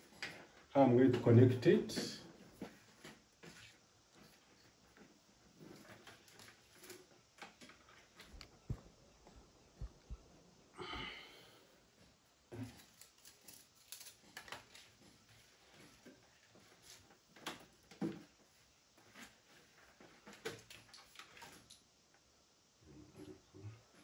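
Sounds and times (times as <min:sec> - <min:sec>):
light strip rustling: 0:12.7 - 0:15.2.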